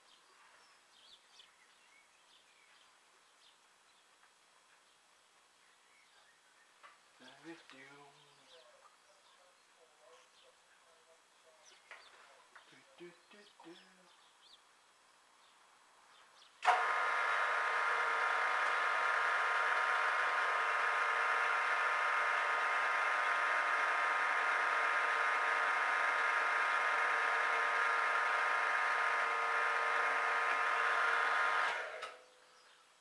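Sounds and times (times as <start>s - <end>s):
milling machine whining: 16.6s - 32.2s.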